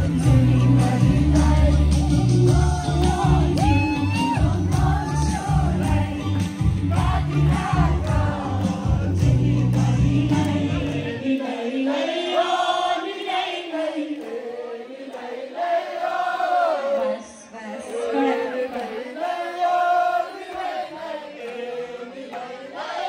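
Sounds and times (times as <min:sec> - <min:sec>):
heavy bass beat: 0:00.0 - 0:11.0
voices singing together: 0:00.0 - 0:23.0.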